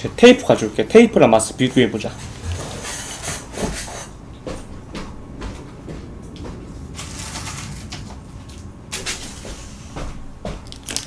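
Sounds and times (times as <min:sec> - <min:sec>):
footsteps: 0:01.8 - 0:10.9.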